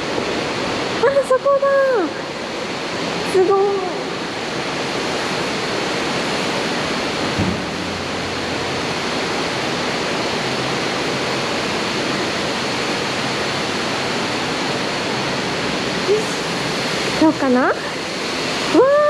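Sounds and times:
waterfall rushing: 0:00.0 - 0:19.0
low thump: 0:07.3 - 0:08.9.

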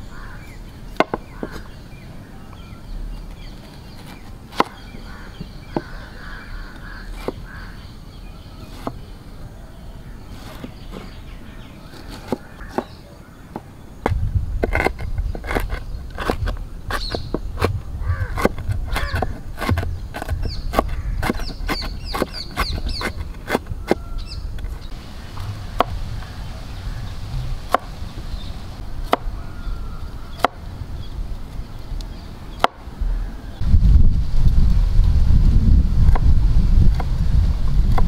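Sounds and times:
birds chirping: 0:00.0 - 0:33.8
cleaver chopping on wooden board: 0:01.0 - 0:01.7, 0:04.0 - 0:04.8, 0:05.4 - 0:07.6, 0:08.6 - 0:09.0, 0:11.9 - 0:24.8, 0:25.4 - 0:26.3, 0:27.4 - 0:28.0, 0:29.0 - 0:29.4, 0:30.3 - 0:30.6, 0:32.6 - 0:32.8
wind buffeting microphone: 0:13.8 - 0:38.0.

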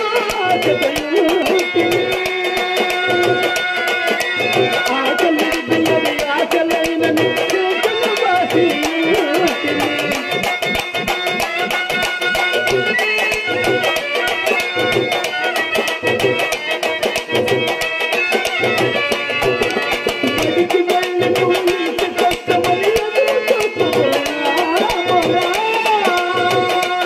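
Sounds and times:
tabla drums playing fast rhythm: 0:00.0 - 0:27.0
wavering melody line: 0:07.2 - 0:25.7.

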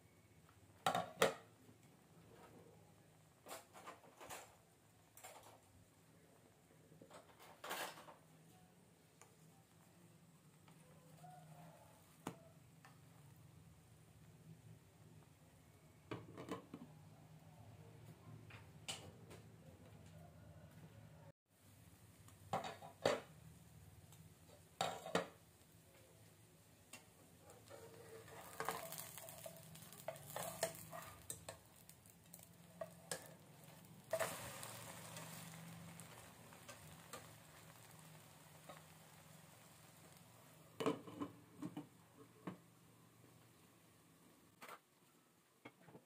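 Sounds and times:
pancake sizzling in oil: 0:22.1 - 0:41.1.

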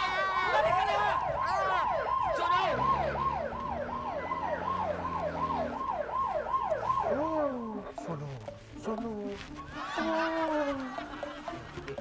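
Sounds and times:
siren falling wail: 0:00.5 - 0:08.0.

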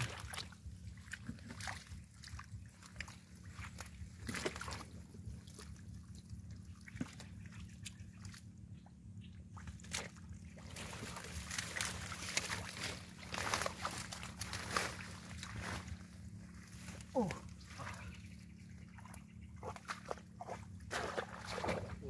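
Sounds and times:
hands sloshing in mud and water: 0:00.0 - 0:22.0
steady low hum: 0:00.0 - 0:22.0
plant stems rustling: 0:10.6 - 0:17.9.

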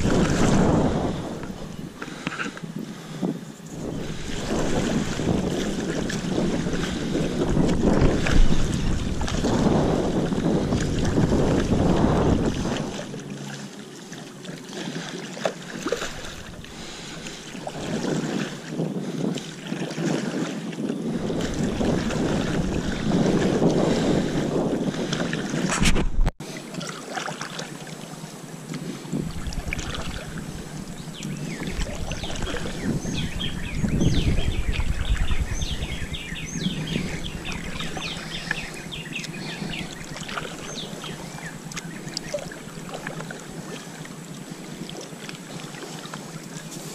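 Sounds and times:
wind buffeting microphone: 0:00.0 - 0:13.8, 0:14.7 - 0:26.4, 0:28.6 - 0:46.9
paddle strokes in water: 0:00.0 - 0:46.9
water washing along a board: 0:04.0 - 0:25.8
high water ticks: 0:38.3 - 0:46.7.

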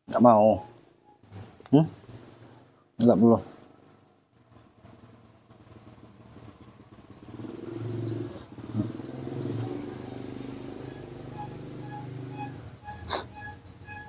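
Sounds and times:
engine running: 0:05.7 - 0:14.0.

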